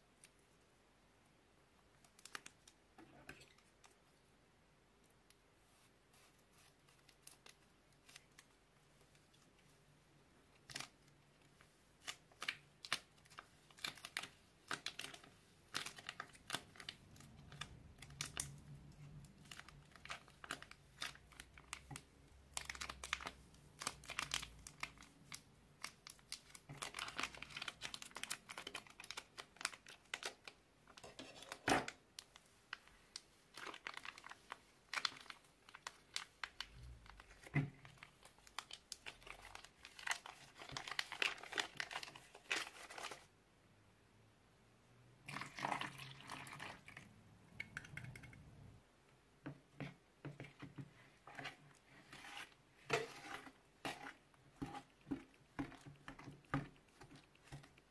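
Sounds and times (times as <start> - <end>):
plastic bags crinkling: 12.0 - 32.8, 33.5 - 43.3.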